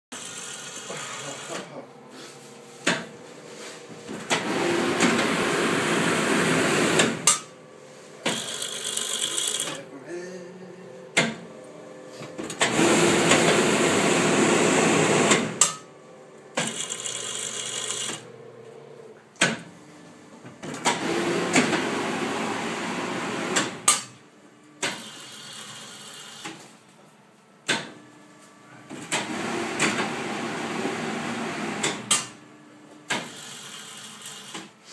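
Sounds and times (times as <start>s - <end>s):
quiet machine noise: 0.2s - 34.9s
machine clicks and clunks: 28.9s - 30.1s.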